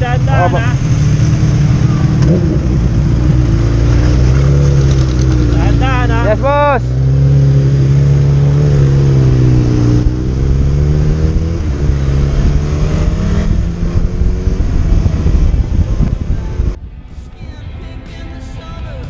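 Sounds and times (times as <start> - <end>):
motorcycle engine accelerating: 0.0 - 16.8
wind rushing over microphone: 8.4 - 17.4.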